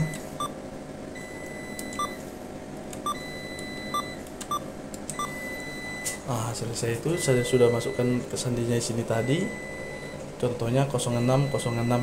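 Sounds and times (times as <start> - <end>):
keypad beeps: 0.0 - 0.6, 1.2 - 2.2, 3.0 - 6.2.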